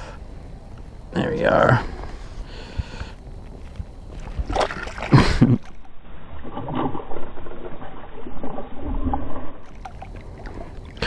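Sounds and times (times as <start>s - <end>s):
water sloshing: 3.3s - 11.0s
fish splashing in water: 4.2s - 11.0s.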